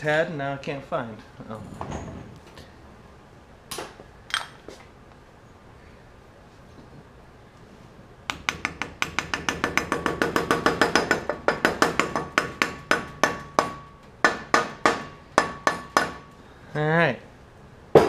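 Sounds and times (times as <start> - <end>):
hammer tapping metal: 8.3 - 16.2.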